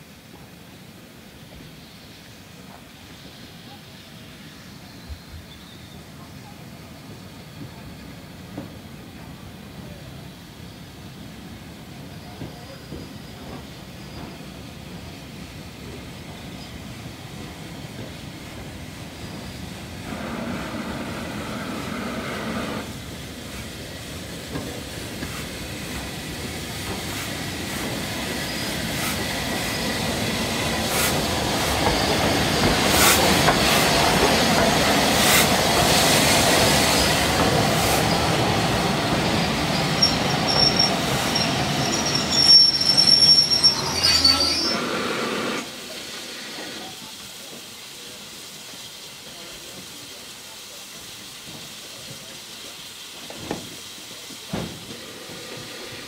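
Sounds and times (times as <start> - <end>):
steam hissing: 0.0 - 56.0
steam locomotive rumbling past: 0.3 - 56.0
brake and wheel squeal: 39.3 - 45.3.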